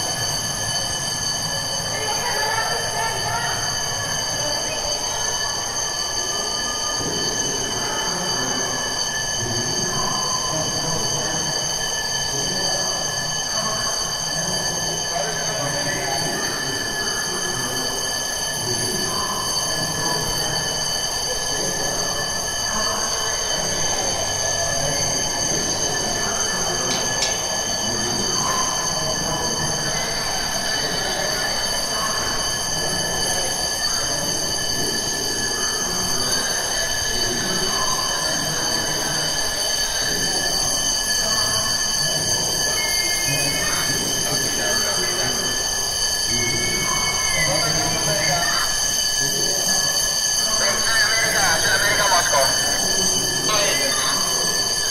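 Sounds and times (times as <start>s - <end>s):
high-pitched alarm ringing: 0.0s - 54.9s
crowd noise: 47.5s - 54.9s.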